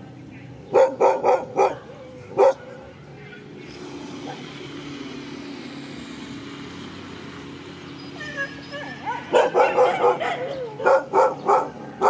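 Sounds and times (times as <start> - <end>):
motor vehicle engine hum: 0.0 - 12.0
dog barking: 0.7 - 2.9, 8.8 - 12.0.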